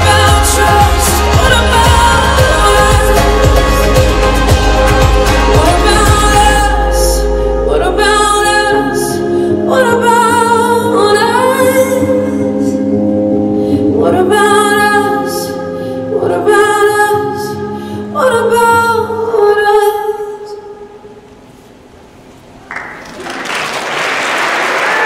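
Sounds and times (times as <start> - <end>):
audience applause: 22.7 - 25.0.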